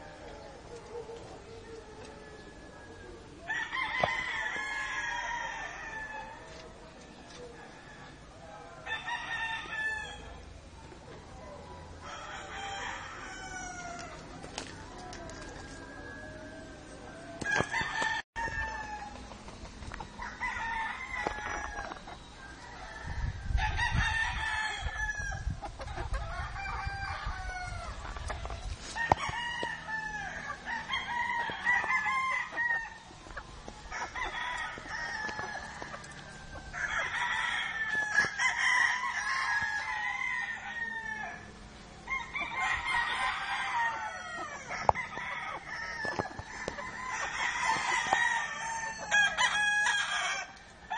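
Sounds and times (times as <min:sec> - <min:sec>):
chickens clucking: 0:00.0 - 0:50.9
rooster crowing: 0:01.7 - 0:06.3, 0:08.8 - 0:10.3, 0:12.0 - 0:14.2, 0:15.3 - 0:19.2, 0:20.2 - 0:25.4, 0:29.0 - 0:33.1, 0:33.9 - 0:41.5, 0:42.1 - 0:50.9.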